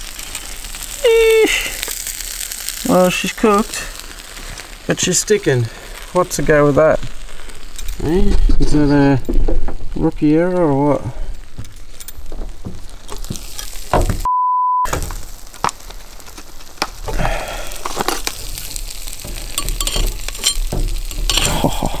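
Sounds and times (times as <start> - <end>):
hot iron sizzling and crackling: 0.0 - 14.3, 14.9 - 22.0
steady bleep tone: 14.2 - 14.9
metal clicks and scrapes: 17.8 - 22.0.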